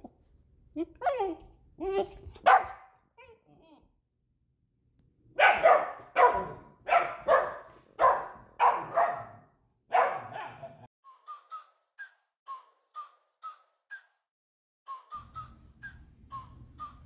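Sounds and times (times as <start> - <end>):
dog barking: 2.4 - 3.0, 5.4 - 10.9.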